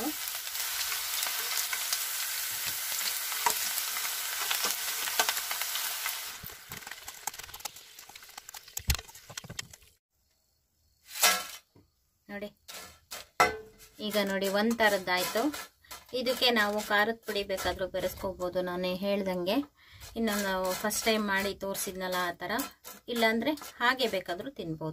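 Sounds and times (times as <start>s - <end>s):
slices deep-frying in oil: 0.0s - 10.0s, 12.7s - 24.9s
spoon stirring: 14.0s - 18.0s, 20.0s - 24.3s.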